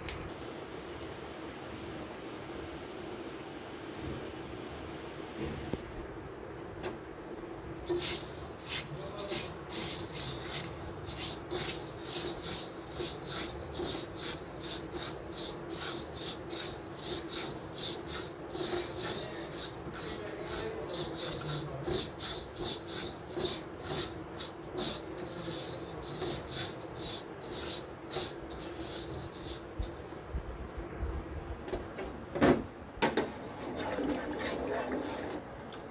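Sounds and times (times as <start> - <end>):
steady low hum: 0.0 - 35.9
spatula scraping grains in clay pot: 7.8 - 30.0, 33.6 - 35.4.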